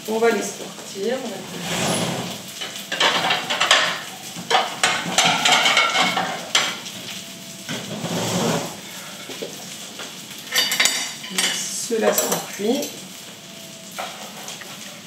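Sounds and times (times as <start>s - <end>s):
hot fat sizzling: 0.0s - 15.0s
utensil scraping frying pan: 1.2s - 6.9s, 7.7s - 9.6s, 13.9s - 15.0s.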